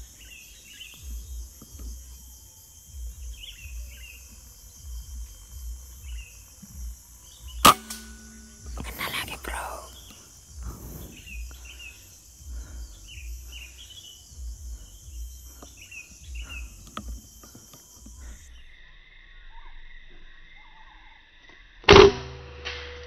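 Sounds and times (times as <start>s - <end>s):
lower buzz: 0.0s - 18.8s
high insect drone: 0.0s - 21.8s
air rifle shot: 7.6s - 9.2s.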